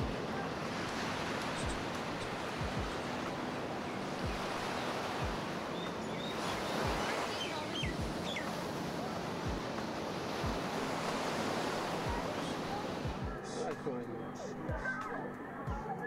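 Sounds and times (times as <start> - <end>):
surf washing on beach: 0.0 - 14.0
wind thumps on microphone: 1.6 - 3.0, 5.2 - 5.5, 6.4 - 7.2, 7.8 - 8.4, 10.4 - 10.7
bird chirps: 5.6 - 8.6.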